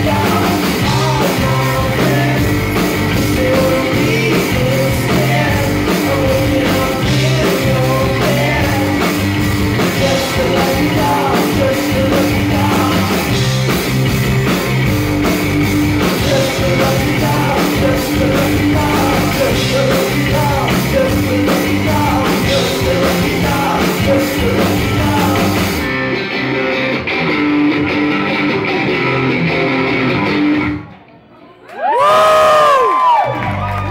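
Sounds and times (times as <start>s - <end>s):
live rock band playing: 0.0s - 30.9s
crowd whooping and cheering: 31.4s - 33.9s.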